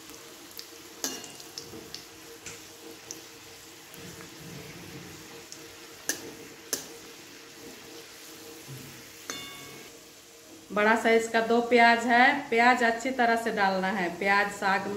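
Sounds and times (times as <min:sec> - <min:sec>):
spices sizzling in hot oil: 0:00.0 - 0:14.9
metallic clink: 0:09.3 - 0:09.9.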